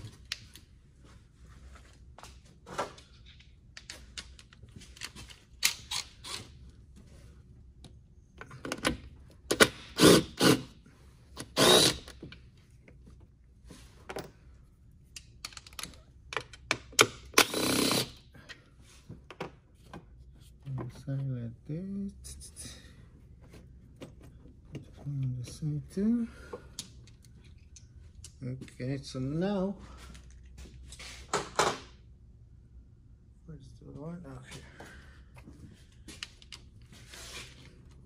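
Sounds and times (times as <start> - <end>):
cordless power tool spinning: 11.4 - 12.1, 17.4 - 18.1
tools and metal parts clicking: 15.2 - 17.6.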